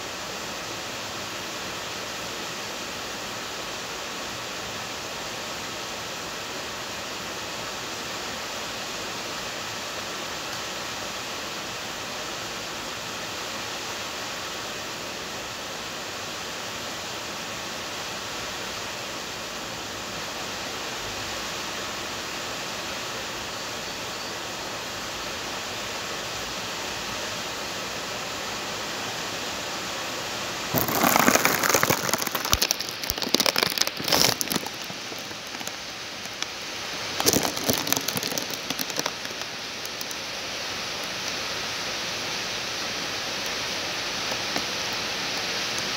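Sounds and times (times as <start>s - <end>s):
heavy rain hissing: 0.0s - 45.9s
loud crackling and rustling: 30.7s - 41.4s.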